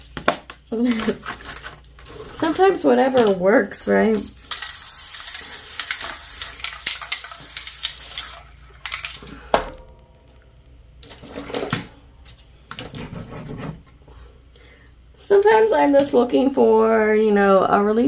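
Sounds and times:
scraping and handling noises: 0.0 - 4.4, 8.7 - 14.1
spray paint can hissing: 4.4 - 8.6.

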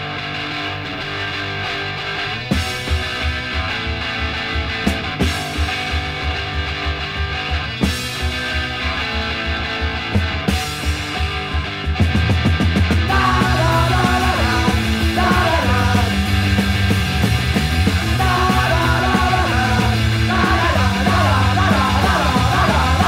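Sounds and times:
punk rock band playing: 0.0 - 23.0
person singing shouted vocals: 13.1 - 16.3, 18.0 - 23.0.

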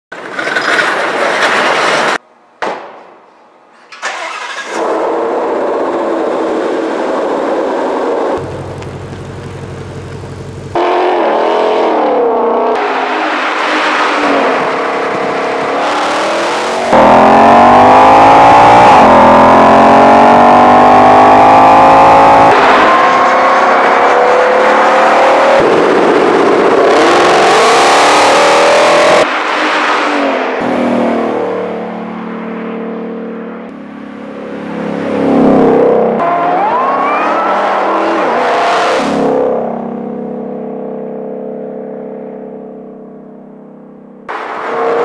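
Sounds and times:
car engine revving: 4.2 - 43.1
car accelerating hard: 4.3 - 31.8
car engine idle rumble: 8.4 - 10.8.

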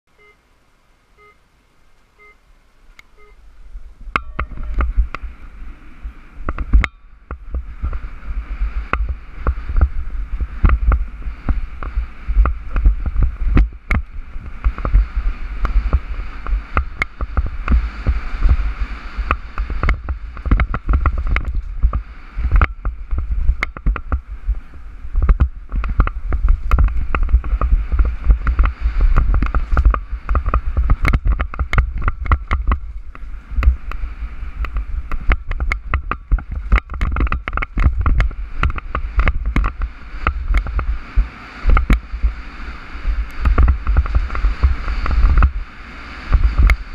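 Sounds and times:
electronic timer beeps: 0.2 - 0.4, 1.2 - 1.4, 2.2 - 2.4, 3.1 - 3.4
wind on microphone: 3.0 - 46.9
bike rattling and knocking: 6.4 - 34.0, 34.6 - 42.4, 43.3 - 45.7.

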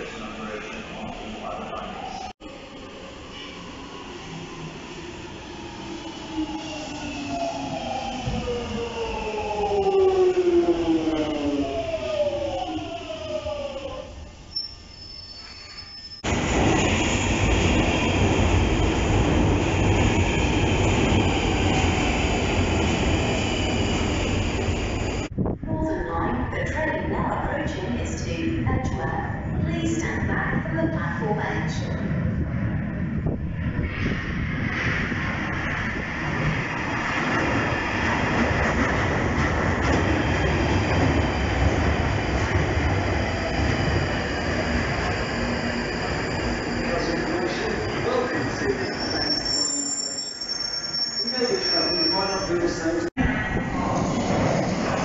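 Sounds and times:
underground train passing: 0.0 - 55.0
high wheel squeal: 14.5 - 16.2, 45.6 - 52.8.

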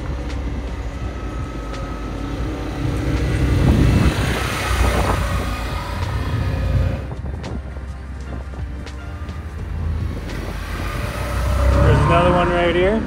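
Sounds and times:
atv engine passing by: 1.3 - 7.2, 10.2 - 13.0.

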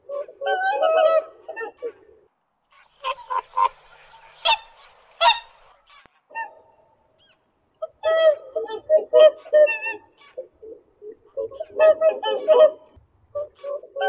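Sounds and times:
waterfowl honking: 2.7 - 10.4.

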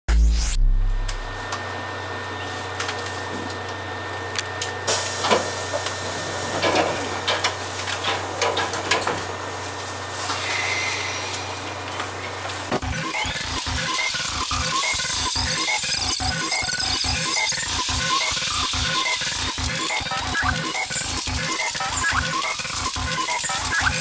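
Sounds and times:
low equipment hum: 0.1 - 15.5.

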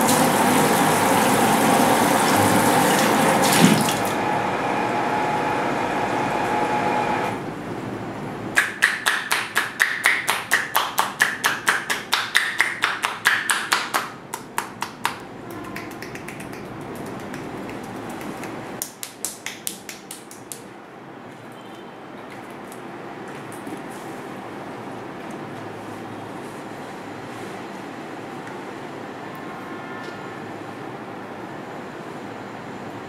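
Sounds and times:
water running into basin: 0.0 - 4.2
hands slapping head: 8.6 - 20.6.

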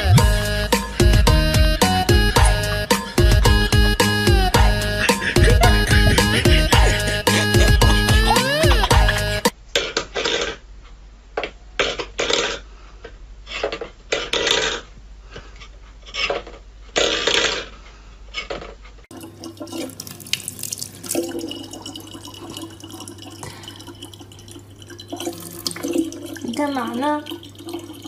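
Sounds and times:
low hum: 0.0 - 9.5
tap water running into bottle: 19.1 - 28.0.

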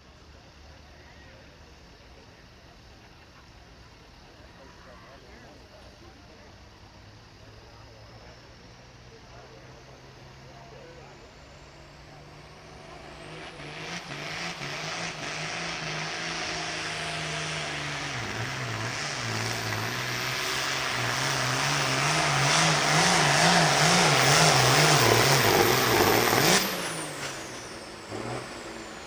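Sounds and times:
tractor diesel engine under load: 5.4 - 29.0.

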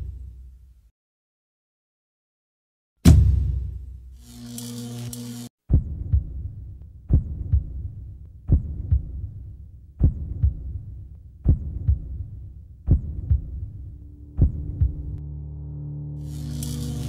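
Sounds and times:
heartbeat double thump: 5.7 - 15.2
low rumble: 11.5 - 17.0.

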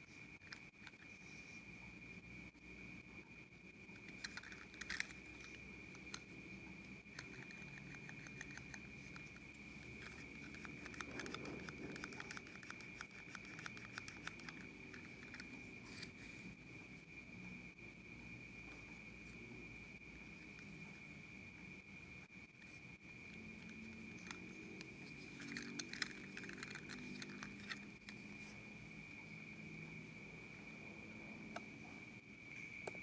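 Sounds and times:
plastic toy clicking in fingers: 4.1 - 6.3, 7.1 - 16.1, 25.4 - 28.2.

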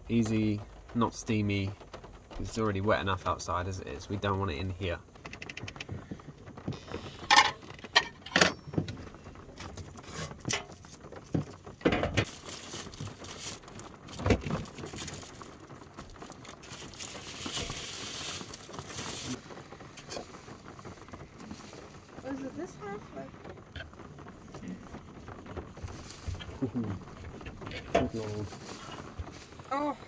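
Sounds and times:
plastic wrapper rustling: 8.9 - 30.0.

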